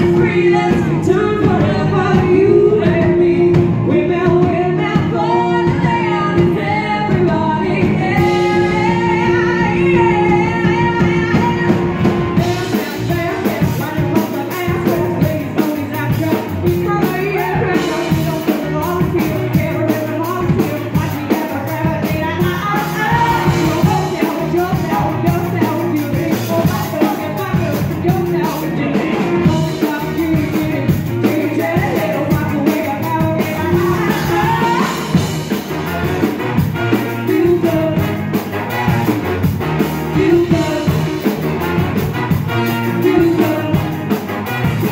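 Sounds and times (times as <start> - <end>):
bass: 0.0 - 44.9
drums: 0.0 - 44.9
electric guitar: 0.0 - 44.9
lead vocals: 0.0 - 44.9
trombone: 0.0 - 44.9
trumpet: 4.3 - 44.9.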